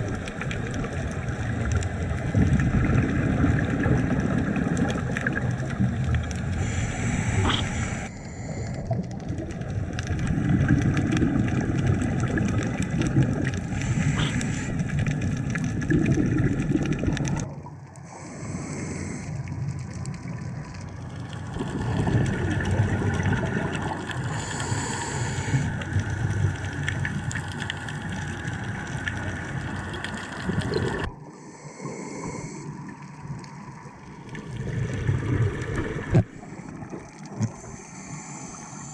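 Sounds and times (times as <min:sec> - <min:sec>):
diver's bubbles gurgling: 0:00.0 - 0:18.0, 0:18.7 - 0:31.2, 0:32.0 - 0:38.9
scuba regulator inhale hiss: 0:06.6 - 0:09.0, 0:13.7 - 0:14.9, 0:18.1 - 0:19.4, 0:24.3 - 0:25.7, 0:31.3 - 0:32.8, 0:37.5 - 0:38.9.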